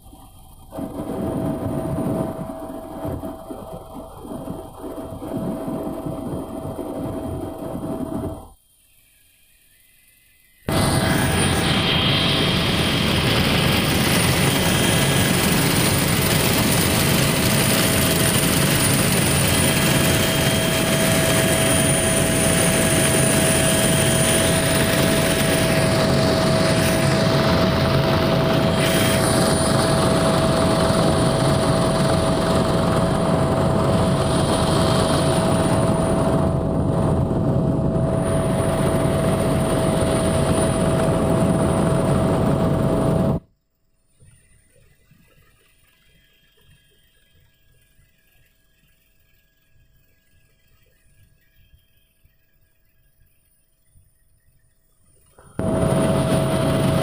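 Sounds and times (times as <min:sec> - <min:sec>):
helicopter cabin drone: 0:00.0 - 0:43.6, 0:44.2 - 0:57.0.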